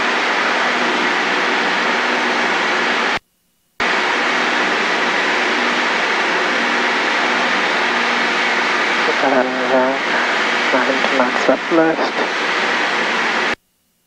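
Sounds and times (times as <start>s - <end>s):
propeller plane engine drone: 0.0s - 3.2s, 3.8s - 13.6s.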